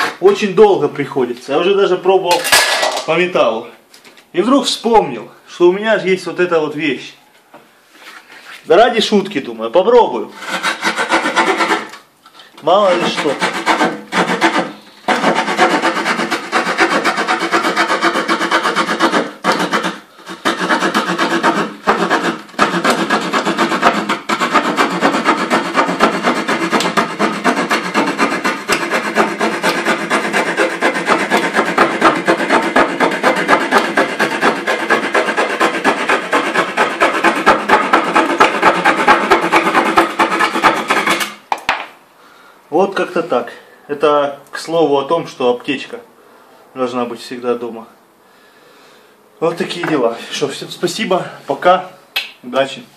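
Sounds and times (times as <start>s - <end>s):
small saw rasping through wood: 0.0s - 0.2s, 10.3s - 12.0s, 12.7s - 41.4s.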